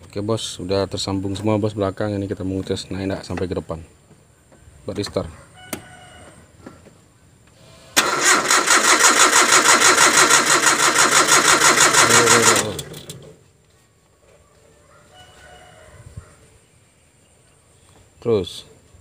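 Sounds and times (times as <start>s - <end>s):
engine cranking on starter motor: 8.0s - 13.4s.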